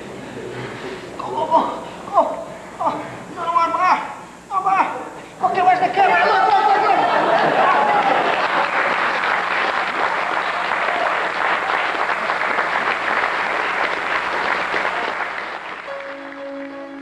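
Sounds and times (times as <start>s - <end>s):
crowd applauding: 6.6s - 17.0s.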